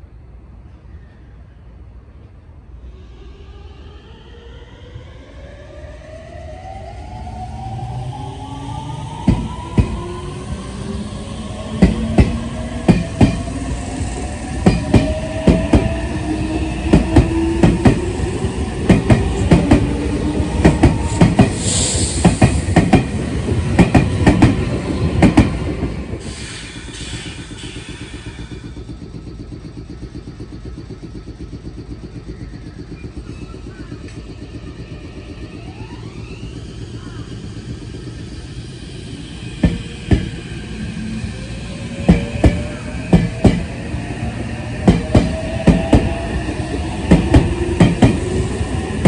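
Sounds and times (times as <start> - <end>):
train rumble: 0.0 - 49.0
electric train motor whine: 2.7 - 49.0
train wheels clacking over rail joints: 44.8 - 48.4.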